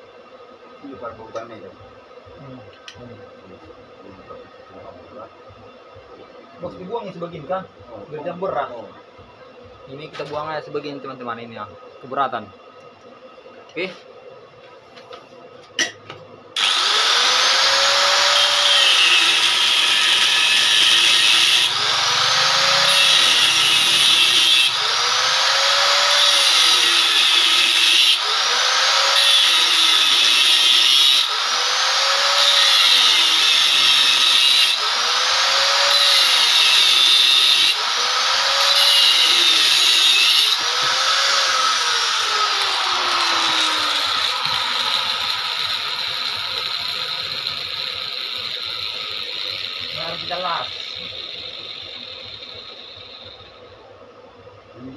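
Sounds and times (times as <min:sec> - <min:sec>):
angle grinder cutting steel: 0:16.6 - 0:53.6.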